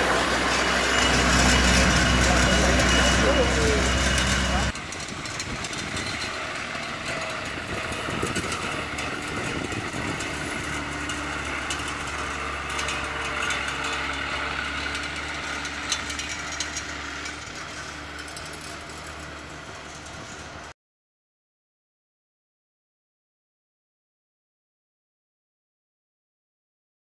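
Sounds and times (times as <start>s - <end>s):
vehicle engine running: 0.0s - 20.7s.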